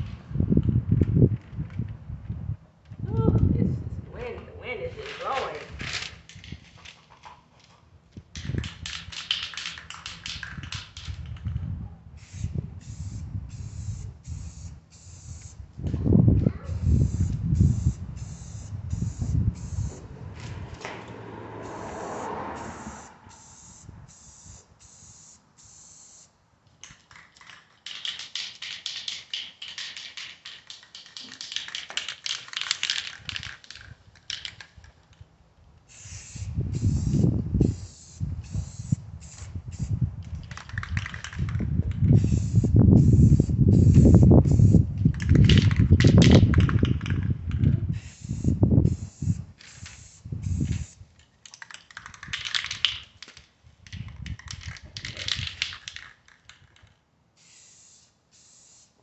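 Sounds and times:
wind rumbling on microphone: 0.0s - 6.8s, 8.1s - 24.6s, 33.1s - 51.2s, 52.0s - 56.0s
aerosol can spraying: 35.9s - 39.9s, 42.1s - 45.6s, 47.9s - 51.0s, 57.4s - 59.0s.

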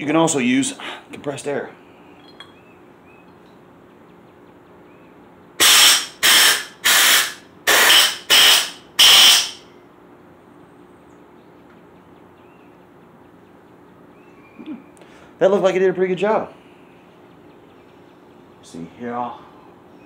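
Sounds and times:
compressed air hissing blasts: 5.6s - 9.6s.

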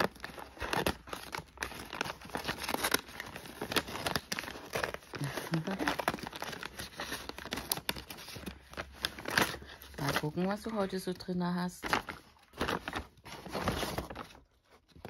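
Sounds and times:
scissors cutting paper: 0.0s - 10.8s
paper crinkling: 0.0s - 15.0s.

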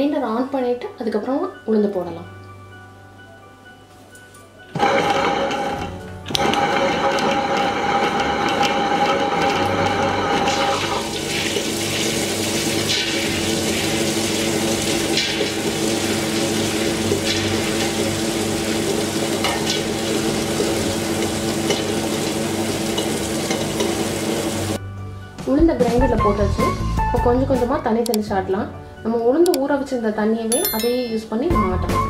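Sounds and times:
wet grinder humming and swishing: 6.3s - 18.3s.

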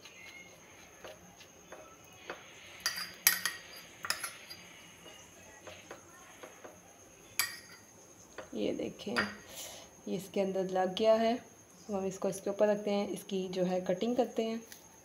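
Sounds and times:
metal spoon scraping a plate: 0.2s - 5.2s.

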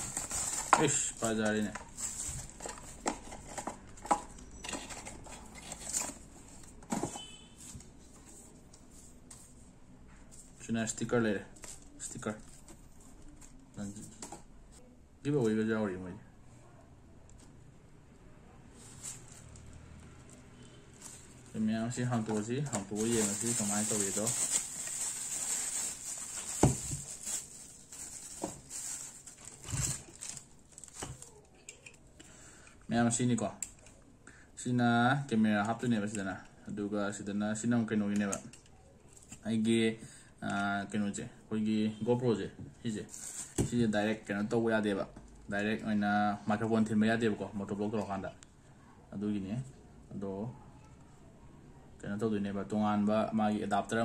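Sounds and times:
bubble wrap crinkling: 0.0s - 3.6s, 20.3s - 31.6s, 43.1s - 43.7s.

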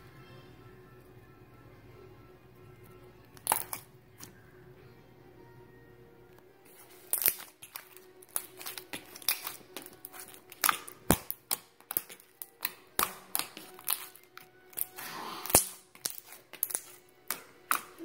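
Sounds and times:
sticky slime clicks and pops: 3.4s - 3.9s, 7.1s - 18.0s.

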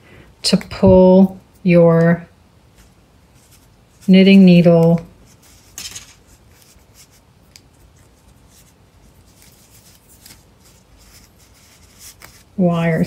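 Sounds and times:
yarn rustling: 2.6s - 13.0s.

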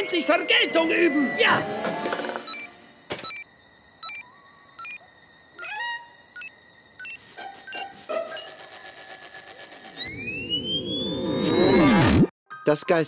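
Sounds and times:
electronic countdown beeps: 2.5s - 4.2s, 4.8s - 5.0s.

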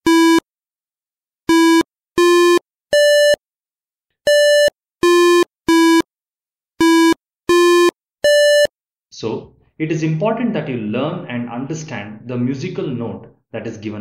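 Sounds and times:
short musical beeps: 4.3s - 6.1s, 6.8s - 8.7s.

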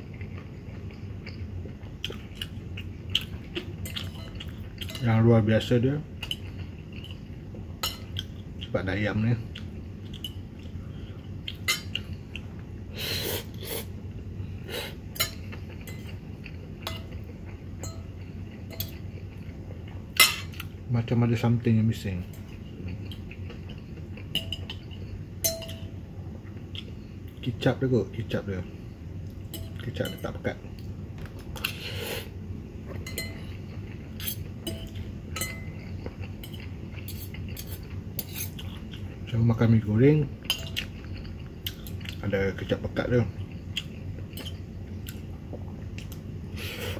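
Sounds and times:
faint low hum: 0.0s - 46.9s
cutlery clinking on ceramic bowl: 16.9s - 17.2s, 25.4s - 25.9s, 34.2s - 38.6s.

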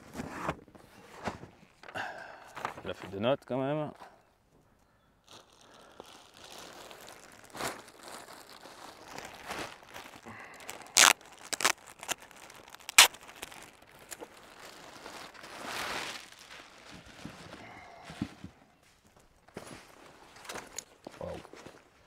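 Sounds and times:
packaging rustling and crinkling: 5.2s - 21.9s.

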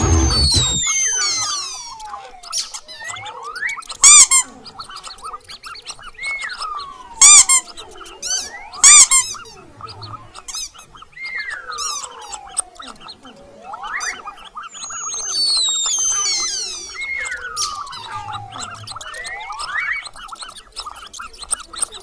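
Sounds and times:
whistle-like squeals: 0.0s - 4.5s, 13.6s - 22.0s
shrill mouse squeaks: 0.0s - 22.0s.

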